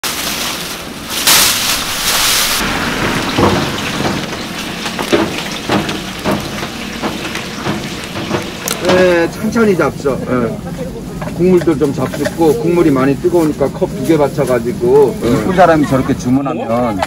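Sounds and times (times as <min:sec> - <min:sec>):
loud hiss: 0:00.0 - 0:09.3
broth simmering: 0:00.8 - 0:11.5
wooden skewers clicking: 0:03.0 - 0:09.3.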